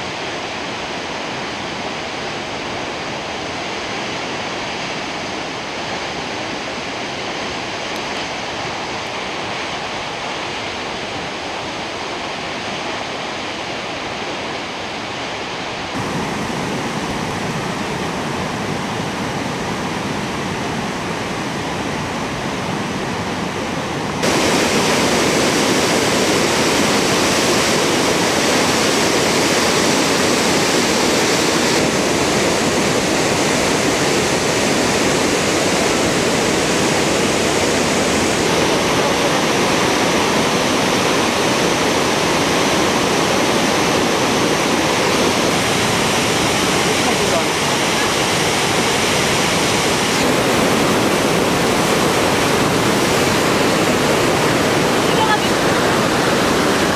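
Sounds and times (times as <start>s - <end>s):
rushing river rapids: 0.0s - 56.9s.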